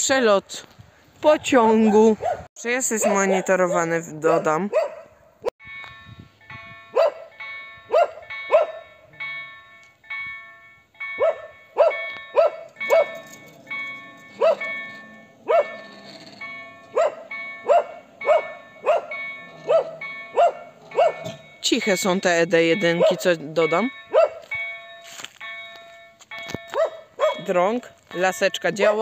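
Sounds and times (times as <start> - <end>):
dogs barking: 1.7 - 5.3, 6.9 - 7.3, 7.9 - 8.9, 11.2 - 21.5, 23.0 - 23.3, 24.1 - 24.5, 26.7 - 27.5
level crossing warning bells: 5.6 - 29.0.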